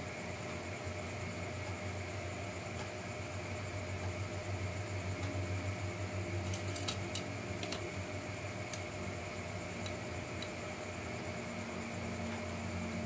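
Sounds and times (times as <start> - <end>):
fan-like hum: 0.0 - 13.0.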